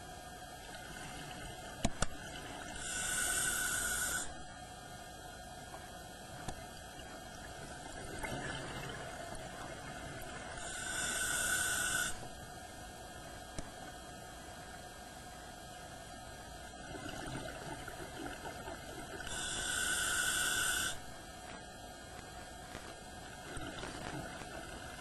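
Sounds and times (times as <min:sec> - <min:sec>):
steady hum: 0:00.0 - 0:25.0
exhaled bubbles hissing: 0:02.2 - 0:04.4, 0:07.0 - 0:12.4, 0:16.8 - 0:21.1, 0:23.3 - 0:25.0
regulator inhalation hiss: 0:02.8 - 0:04.4, 0:10.6 - 0:12.2, 0:19.2 - 0:21.1.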